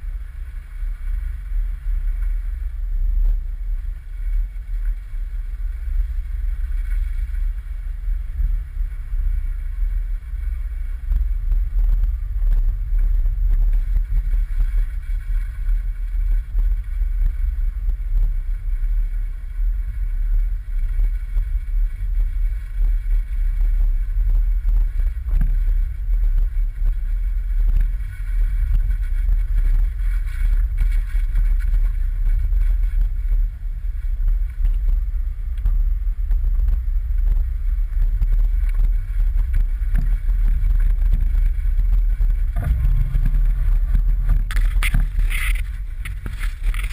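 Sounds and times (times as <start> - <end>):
deep engine rumble: 0.0 - 46.9
wind: 0.0 - 46.9
knocks and rattles over bumps: 39.4 - 46.9.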